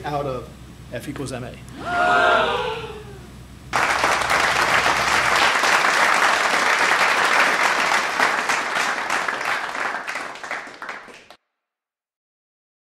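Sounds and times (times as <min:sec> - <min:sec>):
audience applause: 0:03.7 - 0:11.4.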